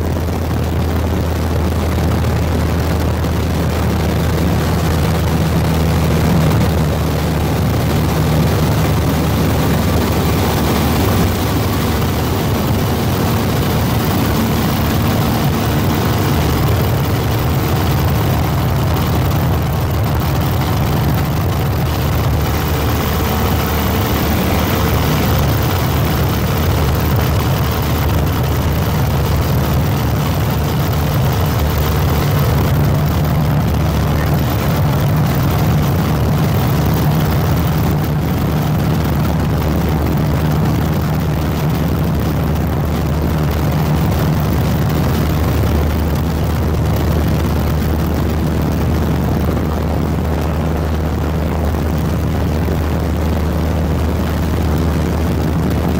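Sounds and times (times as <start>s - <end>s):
aircraft engine drone: 0.0s - 55.9s.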